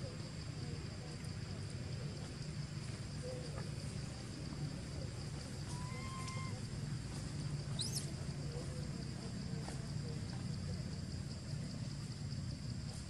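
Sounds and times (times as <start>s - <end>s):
high insect drone: 0.0s - 13.0s
bird chirp: 7.7s - 8.1s.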